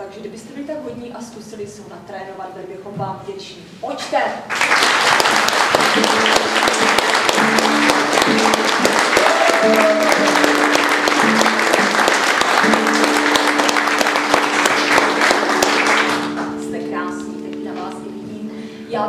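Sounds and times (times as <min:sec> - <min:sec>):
audience clapping: 0:04.5 - 0:16.9
acoustic guitar chords: 0:05.4 - 0:19.0.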